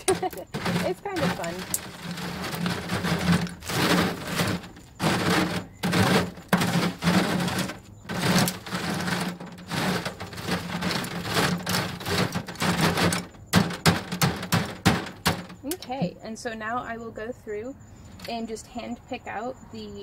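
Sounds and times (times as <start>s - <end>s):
hand cultivator scraping on screen: 0.0s - 16.0s.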